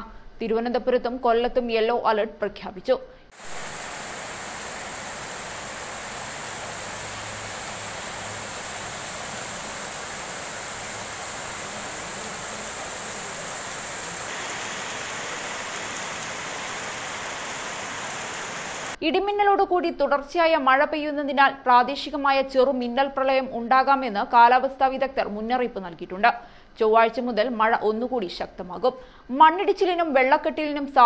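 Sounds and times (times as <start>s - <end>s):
heavy rain falling: 3.4s - 19.0s.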